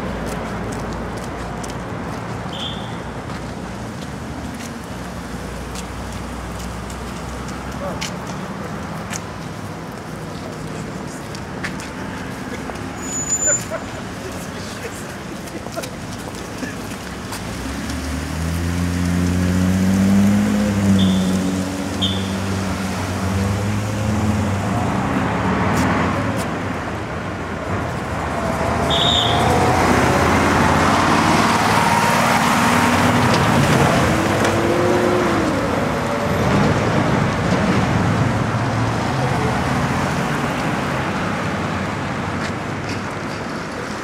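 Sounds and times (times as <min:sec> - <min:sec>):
road traffic rush: 0:00.0 - 0:44.0
vehicle passing close: 0:17.5 - 0:26.4, 0:27.9 - 0:42.2.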